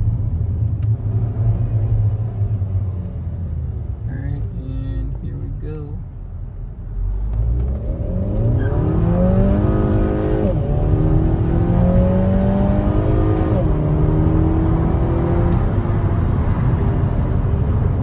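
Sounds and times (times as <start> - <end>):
car engine accelerating hard: 7.1 - 18.0.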